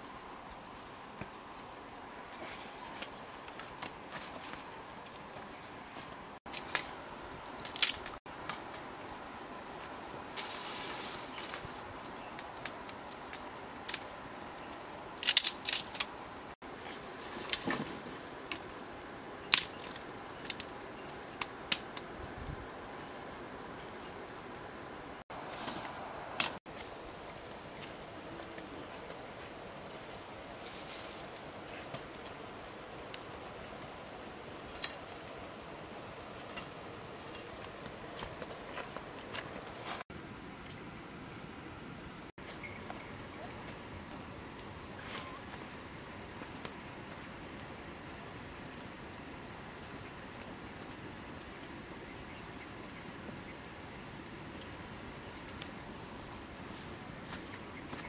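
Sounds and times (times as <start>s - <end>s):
sticks and leaves rustling: 0.0s - 41.4s, 42.4s - 58.0s
faint outdoor hiss: 0.0s - 58.0s
sharp cracks of fire: 6.5s - 8.8s, 15.1s - 16.2s, 17.0s - 22.4s.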